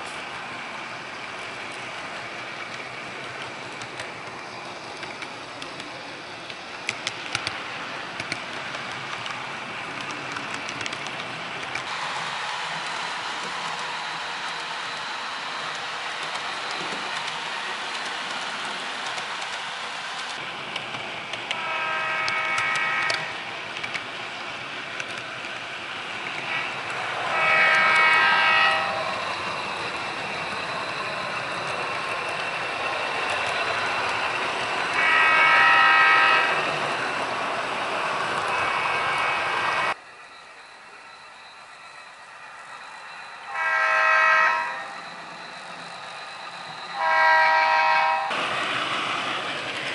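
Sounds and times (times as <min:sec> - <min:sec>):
model train wheels rushing: 0:00.0 - 0:43.7, 0:44.3 - 0:49.9
sharp clicks: 0:06.8 - 0:07.6, 0:08.2 - 0:09.4, 0:10.0 - 0:11.9
model train horn blast: 0:21.6 - 0:23.3, 0:27.3 - 0:29.0, 0:35.0 - 0:36.5, 0:43.5 - 0:44.9, 0:46.9 - 0:48.3.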